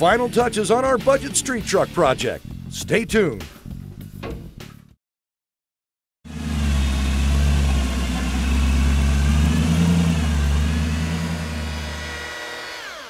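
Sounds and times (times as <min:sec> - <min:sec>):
large engine idling: 0:06.3 - 0:12.0.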